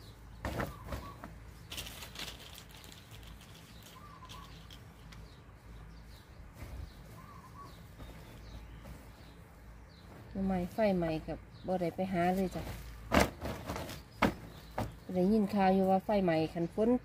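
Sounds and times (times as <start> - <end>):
bird chirping faintly: 0.0 - 17.0
mesh bag rustling: 0.5 - 5.2, 12.2 - 15.1
snail shells knocking and rustling: 1.4 - 5.5.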